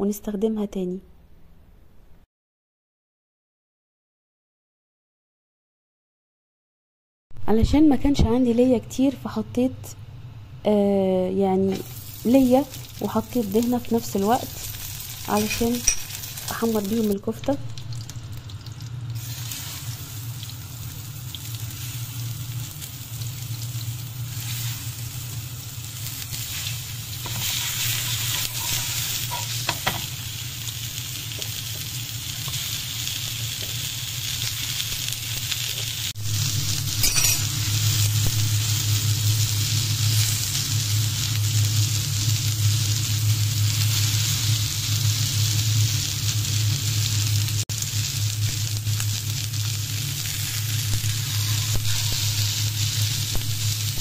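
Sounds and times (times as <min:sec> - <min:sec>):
low hum: 0:07.4 - 0:29.6
meat skewers sizzling in fat: 0:11.7 - 0:54.0.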